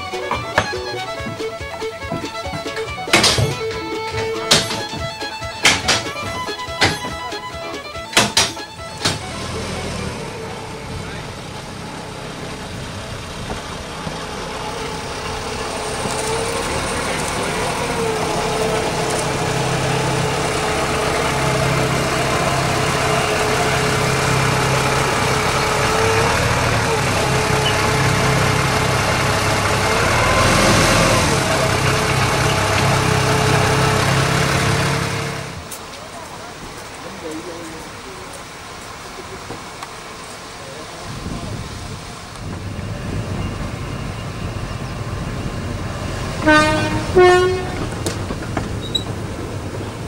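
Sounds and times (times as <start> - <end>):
diesel locomotive engine running: 0.0 - 50.0.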